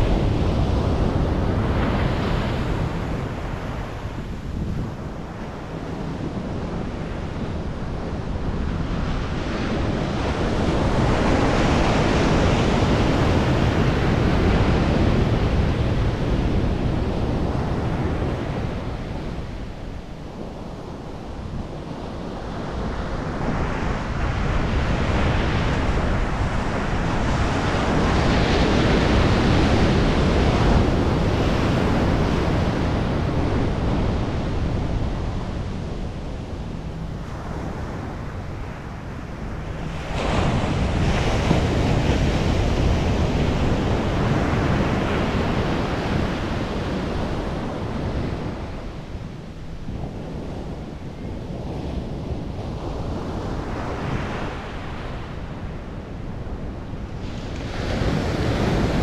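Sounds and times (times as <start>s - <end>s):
wind buffeting microphone: 0.0s - 59.0s
ocean surf breaking: 22.3s - 59.0s.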